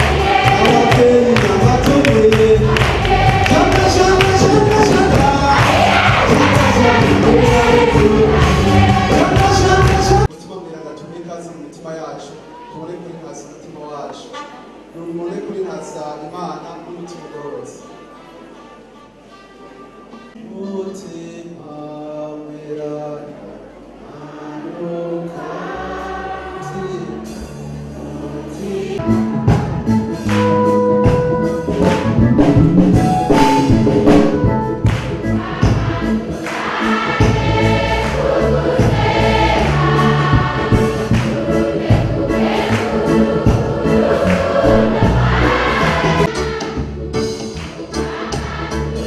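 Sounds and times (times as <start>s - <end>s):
choir singing a hymn: 0.0s - 10.3s, 21.6s - 29.2s, 31.6s - 49.0s
drum kit: 0.0s - 10.3s, 29.0s - 49.0s
electronic keyboard: 29.0s - 48.1s.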